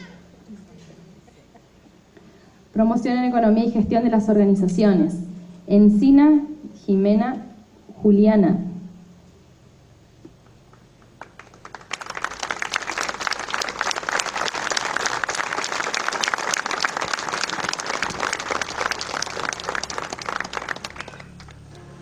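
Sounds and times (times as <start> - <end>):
audience applauding: 10.7 - 22.0.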